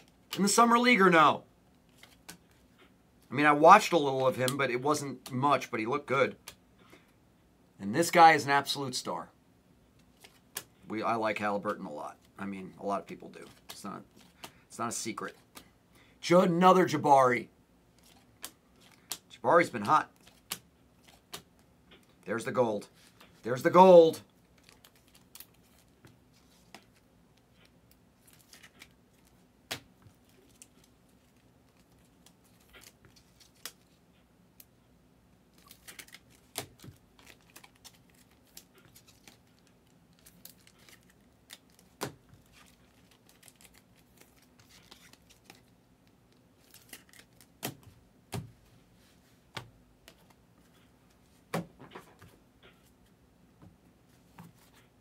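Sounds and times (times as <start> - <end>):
trading cards rustling and clicking: 1.8 - 2.9, 10.0 - 10.7, 13.0 - 15.7, 18.0 - 34.0, 35.5 - 48.5, 49.5 - 51.2.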